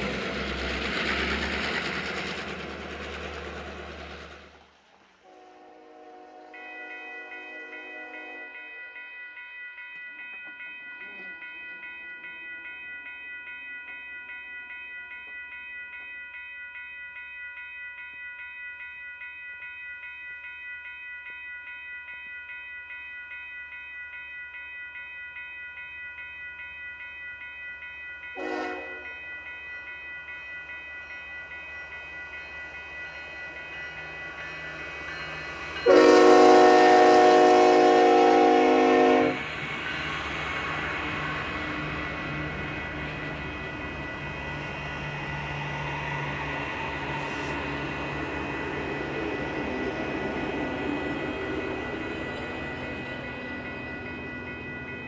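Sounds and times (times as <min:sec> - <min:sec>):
locomotive air horn blasts: 0:05.3 - 0:06.6, 0:28.4 - 0:29.0, 0:35.9 - 0:39.4.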